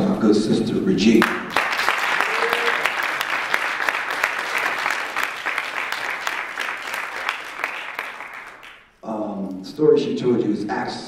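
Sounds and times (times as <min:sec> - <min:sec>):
audience applauding: 0:01.2 - 0:08.9.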